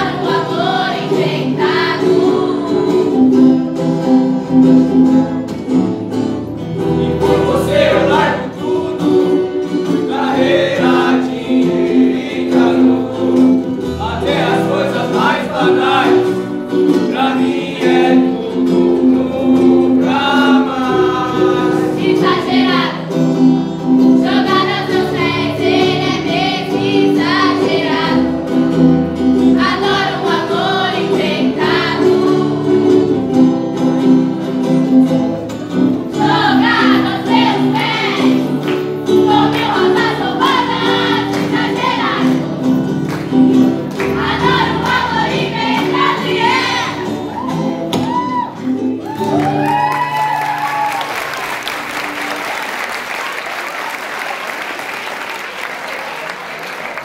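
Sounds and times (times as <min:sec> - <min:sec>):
group of voices singing: 0:00.0 - 0:04.5, 0:06.8 - 0:34.3, 0:35.8 - 0:48.3
acoustic guitar chords: 0:00.0 - 0:50.2.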